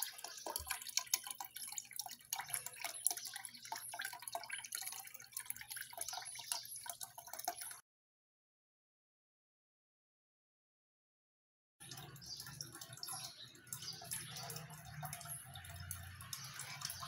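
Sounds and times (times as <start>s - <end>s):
fountain water splashing and dripping: 0.0s - 7.8s, 11.8s - 17.0s.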